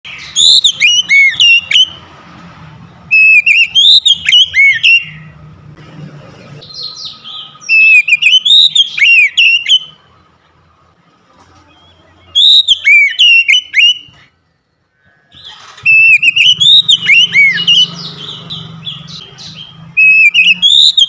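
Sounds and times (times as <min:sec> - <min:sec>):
bird singing whistled phrases: 0:00.1 - 0:02.0, 0:03.1 - 0:05.3, 0:06.6 - 0:10.0, 0:11.8 - 0:14.2, 0:15.4 - 0:21.0.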